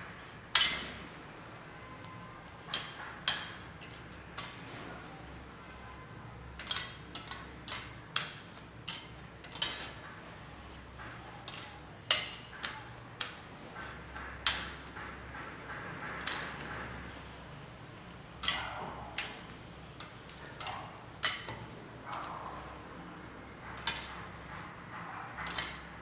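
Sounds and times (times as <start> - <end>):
pins clicking against metal tin: 0.5 - 1.0, 2.6 - 4.6, 6.5 - 10.4, 11.0 - 17.2, 18.0 - 22.7, 23.6 - 26.0.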